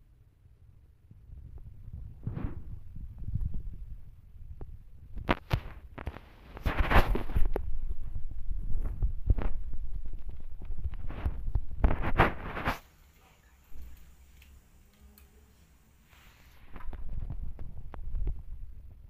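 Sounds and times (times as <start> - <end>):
phone microphone handling noise: 4.5 - 12.9, 16.6 - 18.7.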